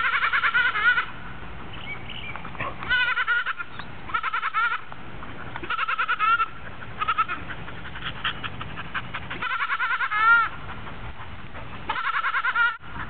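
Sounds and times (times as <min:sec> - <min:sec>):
goats bleating: 0:00.0 - 0:01.1, 0:02.8 - 0:04.9, 0:05.6 - 0:07.6, 0:09.3 - 0:10.5, 0:11.9 - 0:12.8.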